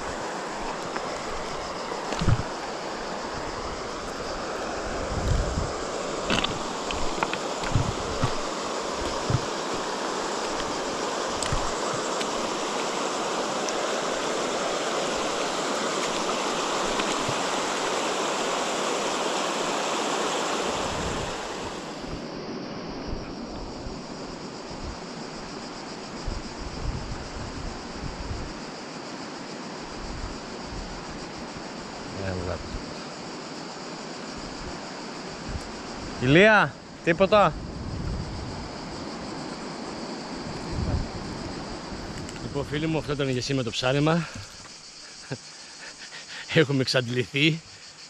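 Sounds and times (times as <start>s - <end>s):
wind thumps on microphone: 0.0s - 2.6s, 4.9s - 12.6s, 20.8s - 22.3s, 26.2s - 28.6s, 37.5s - 39.2s, 40.4s - 42.6s
river water rushing over stones: 0.0s - 22.2s.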